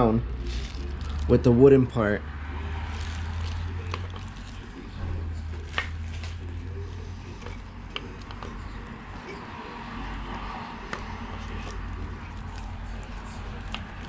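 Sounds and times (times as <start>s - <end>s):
plastic rustling: 0.3s - 1.5s, 2.8s - 9.0s, 11.3s - 14.0s.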